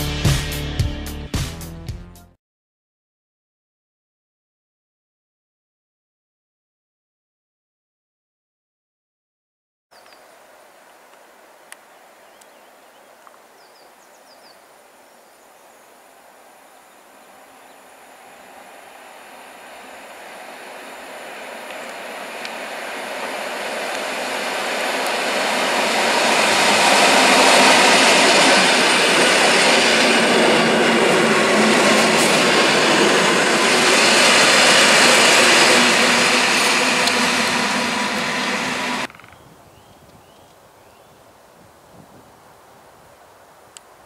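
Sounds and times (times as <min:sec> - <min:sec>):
electric train passing: 0:16.4 - 0:39.1.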